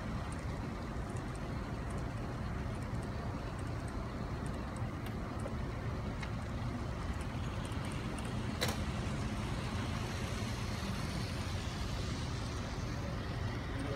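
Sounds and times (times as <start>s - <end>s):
station hall rumble: 0.0s - 13.9s.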